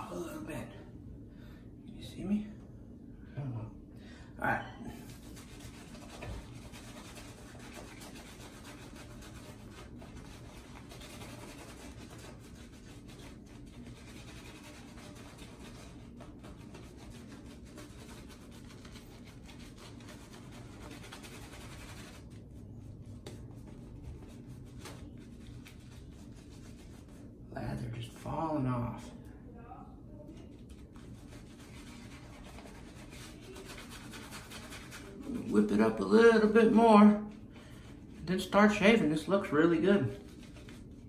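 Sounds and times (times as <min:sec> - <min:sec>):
shaving brush rubbing: 0:05.0 - 0:27.3, 0:30.4 - 0:41.0.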